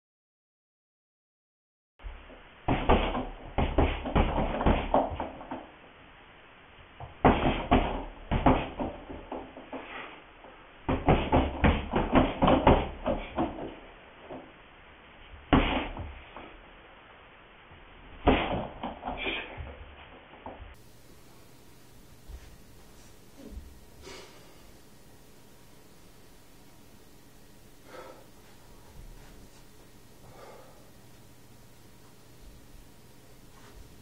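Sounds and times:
gloved punches on heavy bag: 2.7s - 5.5s, 7.0s - 9.4s, 10.9s - 13.8s, 15.5s - 16.2s, 18.2s - 19.7s.

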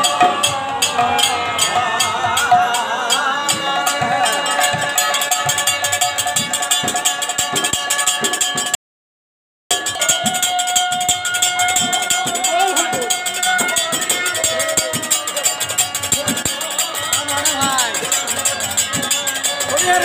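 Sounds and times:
brass hand cymbals clashing: 9.7s - 20.0s.

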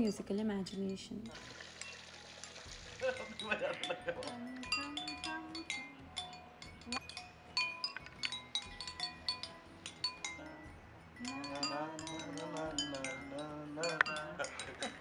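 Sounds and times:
ceramic bowls ringing: 3.0s - 15.0s
person singing: 3.2s - 6.2s, 10.3s - 15.0s.

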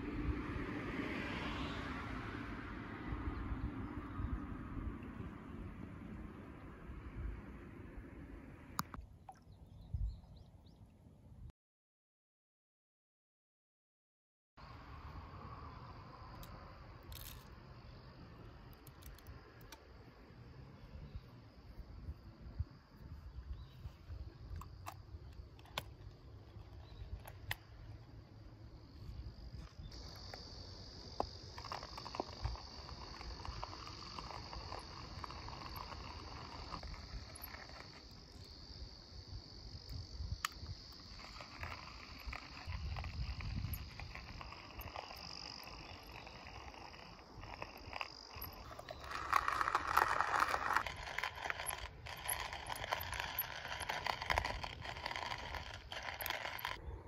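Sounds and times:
wind rumble on microphone: 0.0s - 8.9s, 9.6s - 10.5s, 39.2s - 57.0s
insects buzzing: 14.6s - 57.0s
coffee grinder parts clattering: 17.1s - 17.5s, 31.2s - 38.1s, 40.4s - 56.8s.

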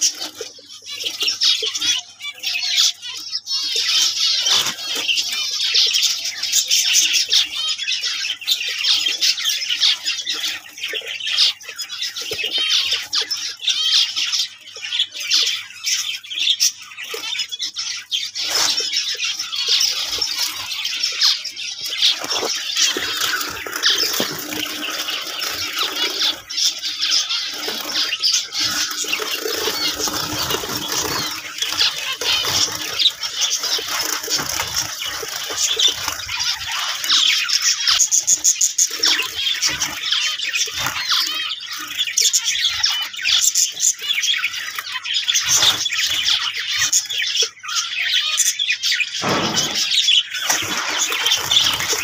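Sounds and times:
finches chirping: 0.0s - 52.0s.

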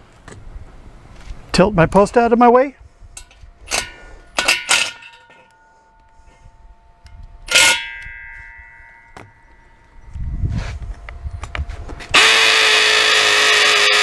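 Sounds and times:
steel gate post clanging: 3.2s - 10.1s.

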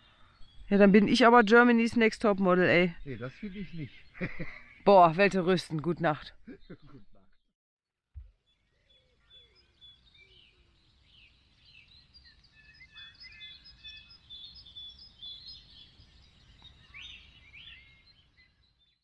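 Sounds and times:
small birds chirping: 0.0s - 7.4s, 8.2s - 19.0s.

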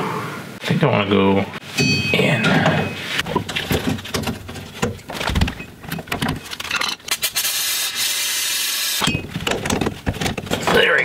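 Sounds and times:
metal tools clicking and scraping: 5.9s - 7.2s.

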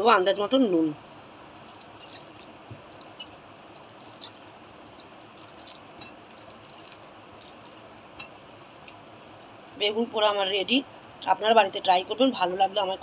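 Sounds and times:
hand squishing soft food: 1.5s - 10.1s.

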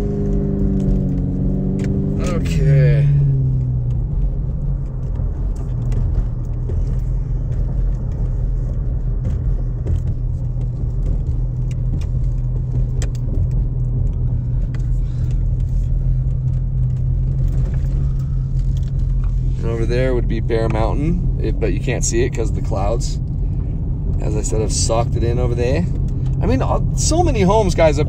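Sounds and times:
tyre drone: 0.0s - 21.7s
car engine hum: 0.0s - 28.0s
light ticks and rattles: 0.2s - 28.0s.

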